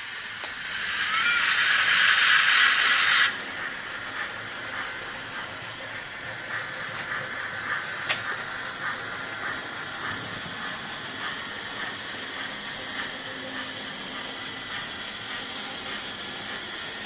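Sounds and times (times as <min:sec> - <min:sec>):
model steam locomotive chuffing: 0:00.0 - 0:17.0
model train running hiss: 0:00.0 - 0:17.0
sharp click: 0:00.4 - 0:00.6.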